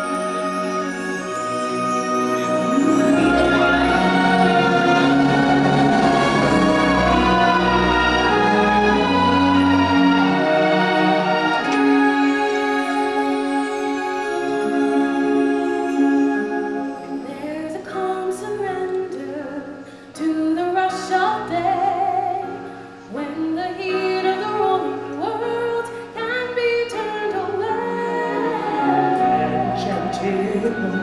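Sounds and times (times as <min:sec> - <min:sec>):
voices singing long sliding notes: 0:00.0 - 0:17.5, 0:27.6 - 0:31.0
instrumental accompaniment: 0:00.0 - 0:19.5, 0:23.9 - 0:31.0.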